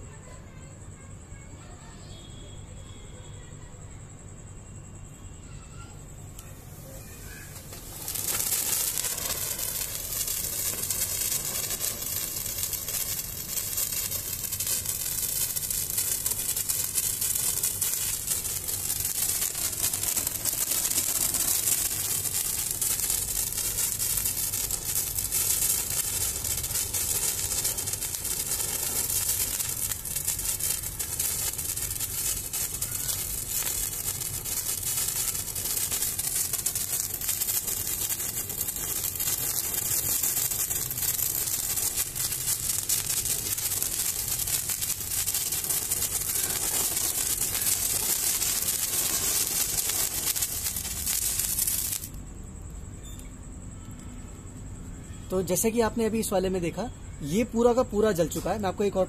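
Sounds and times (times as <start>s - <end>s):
firework hissing and crackling: 0.0s - 3.4s, 4.2s - 54.0s, 54.8s - 59.0s.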